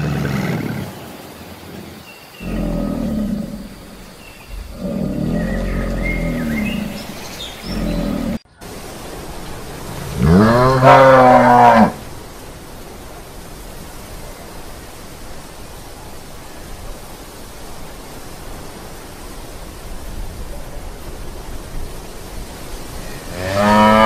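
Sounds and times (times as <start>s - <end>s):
steady background hiss: 0.0s - 24.0s
cow mooing: 2.4s - 8.4s, 10.2s - 12.0s, 23.3s - 24.0s.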